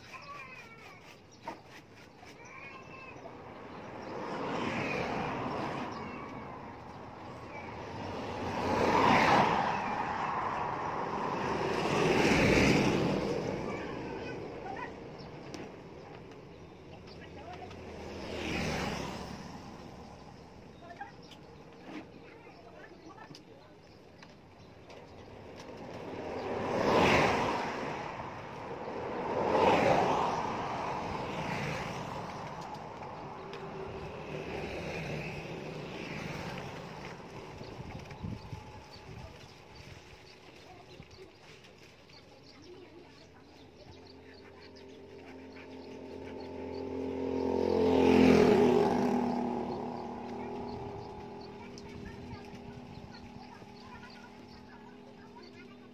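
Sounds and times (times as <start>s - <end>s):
vehicles passing on road: 0.0s - 55.9s
faint steady engine: 32.2s - 55.9s.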